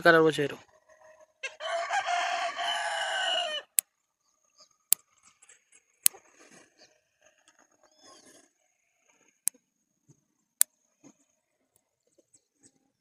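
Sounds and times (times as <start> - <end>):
rooster crowing: 1.4 - 3.8.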